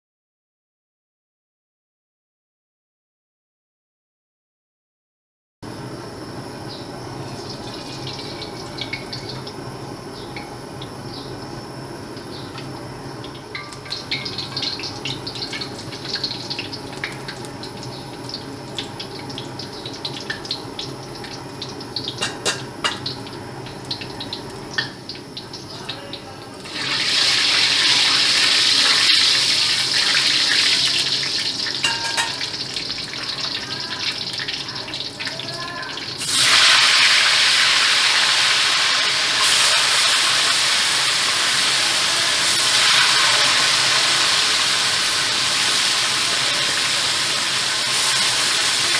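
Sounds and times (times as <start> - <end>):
fish sizzling in hot oil: 7.0 - 48.9
oil crackling: 12.6 - 38.2.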